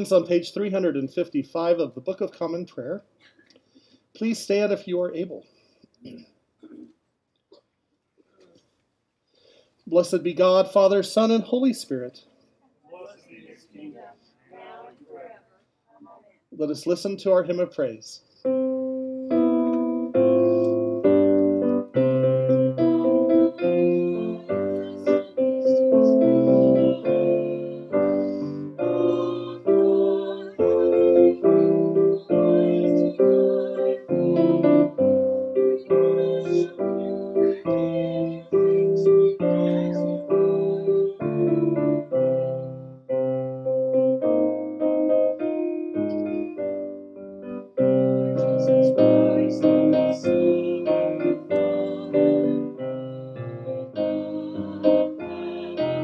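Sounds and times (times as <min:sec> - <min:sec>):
piano playing block chords: 0:18.4 - 0:56.0.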